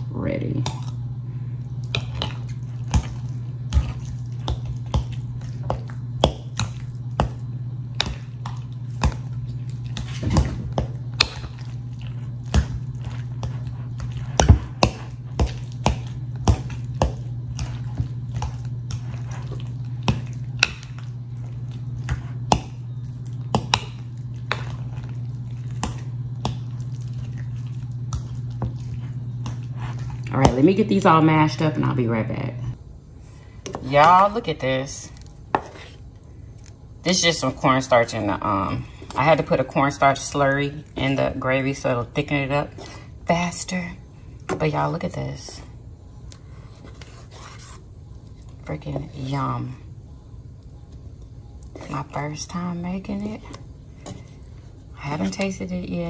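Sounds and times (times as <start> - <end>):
steady low hum: 0.0 - 56.0
fork mashing potatoes: 1.7 - 31.2.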